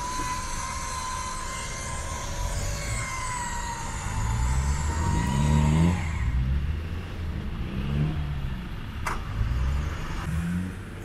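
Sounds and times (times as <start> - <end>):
electric winch whining: 0.0 - 6.6
engine rumbling and revving: 0.0 - 11.0.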